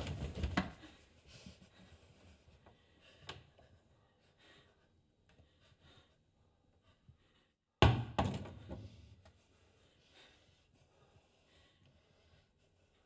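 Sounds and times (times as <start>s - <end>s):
heavy thuds in wooden room: 7.8s - 8.9s.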